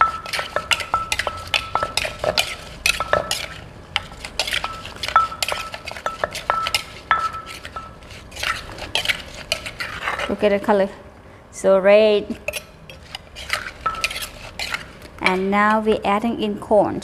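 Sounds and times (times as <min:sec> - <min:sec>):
wooden pestle pounding in mortar: 0:00.0 - 0:09.9
metal spoon scraping mortar: 0:00.0 - 0:10.6, 0:12.3 - 0:15.8.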